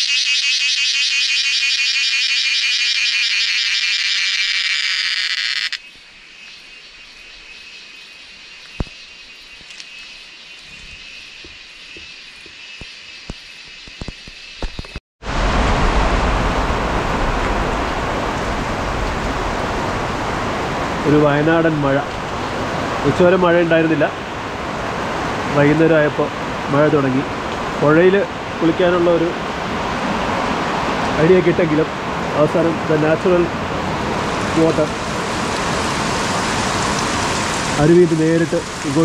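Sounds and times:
insects buzzing: 0.0 - 14.9
heavy rain: 15.2 - 39.0.

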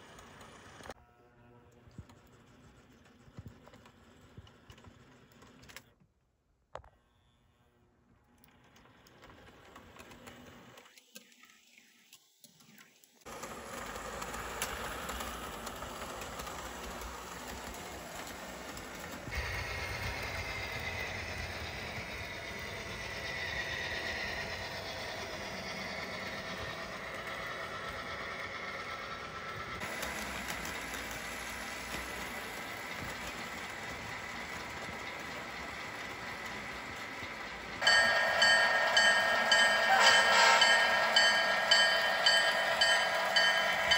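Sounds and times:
model locomotive motor and wheel hum: 0.0 - 6.0, 7.6 - 43.9
loud held tones: 37.8 - 43.9.

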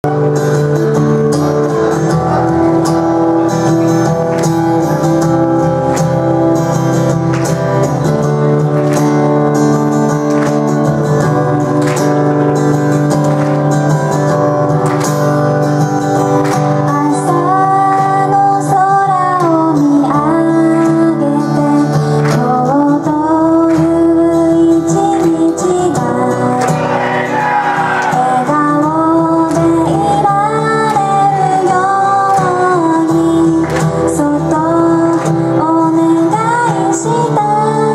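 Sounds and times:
woman singing: 16.8 - 26.8, 28.1 - 37.9
acoustic guitar strumming chords: 26.4 - 36.2.

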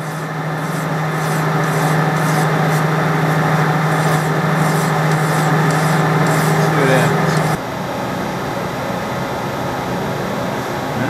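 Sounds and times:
file rasping on metal: 0.0 - 7.6
lathe humming: 0.0 - 7.6.

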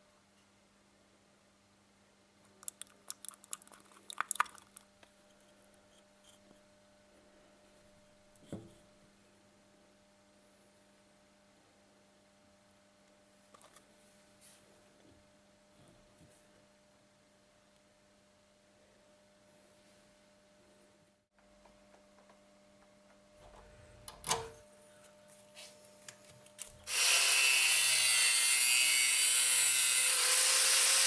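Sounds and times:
faint mains hum: 0.0 - 26.9
soft knock: 8.4 - 8.8.

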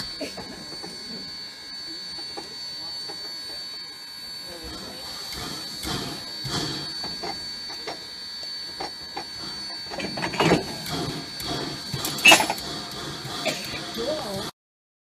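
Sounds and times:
faint high whine: 0.0 - 14.5
metal couplers clanking: 9.9 - 14.2.

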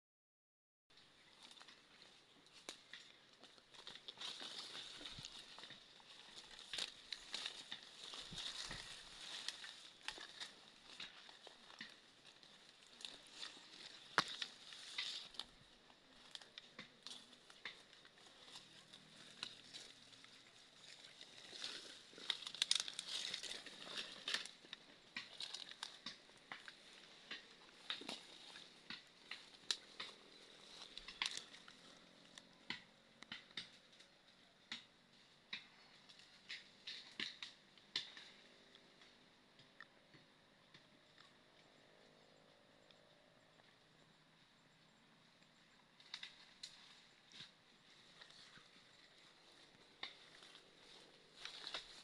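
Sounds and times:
footsteps crunching through dry leaves: 1.3 - 32.4, 46.2 - 52.0.

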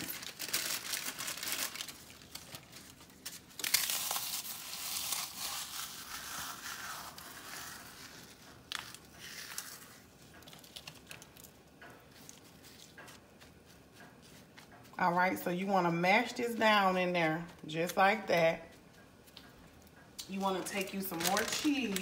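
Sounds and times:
crackers being crushed: 0.0 - 13.3, 20.2 - 22.0.

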